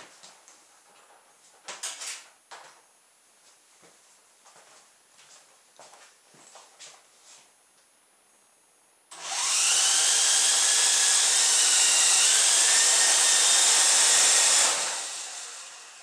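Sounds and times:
toy helicopter rotors whining: 0:09.1 - 0:16.0.

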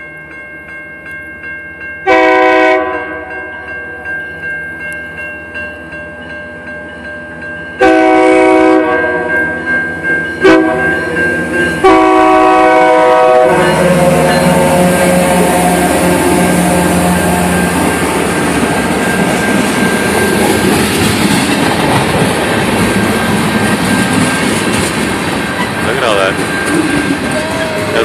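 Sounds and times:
crossing warning bell ringing: 0:00.0 - 0:28.0
train engine and wheels rumbling: 0:00.0 - 0:28.0
train horn: 0:02.1 - 0:03.6, 0:07.8 - 0:09.5, 0:10.4 - 0:11.2, 0:11.8 - 0:18.4.

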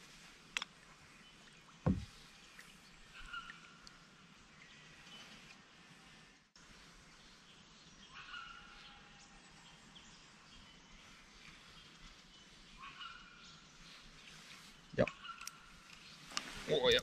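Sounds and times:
creek-side ambience: 0:00.0 - 0:17.0
faint bird calls: 0:01.8 - 0:04.0, 0:08.0 - 0:09.5, 0:11.0 - 0:16.8.

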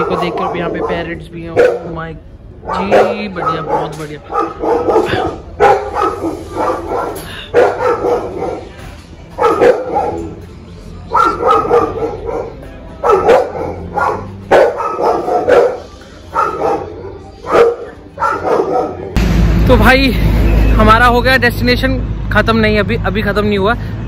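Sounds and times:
dog barking: 0:00.0 - 0:02.0, 0:02.6 - 0:10.4, 0:11.1 - 0:19.2.

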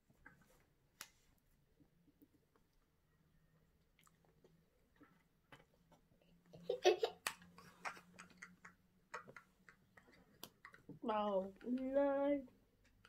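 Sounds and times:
girl laughing: 0:06.6 - 0:07.3
faint clicks and taps: 0:07.1 - 0:13.0.

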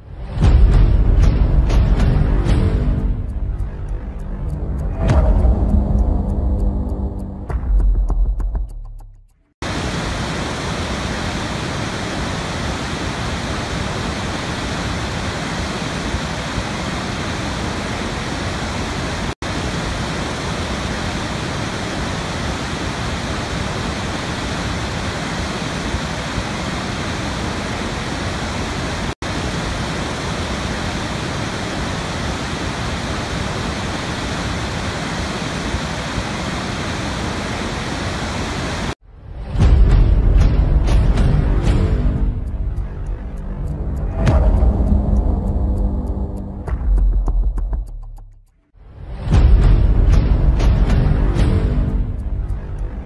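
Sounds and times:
waterfall rushing: 0:09.6 - 0:39.0.

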